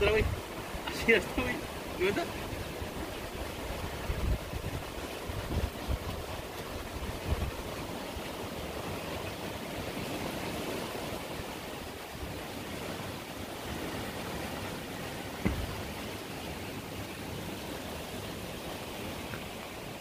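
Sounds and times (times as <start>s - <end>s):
river rushing: 0.0s - 20.0s
short low thumps: 15.4s - 15.9s.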